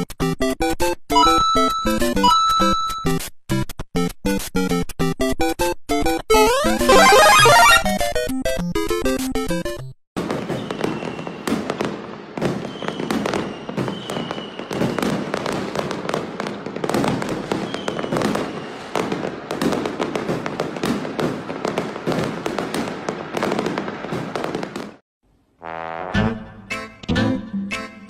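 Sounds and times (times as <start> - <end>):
fireworks bangs and crackles: 10.2 - 25.0.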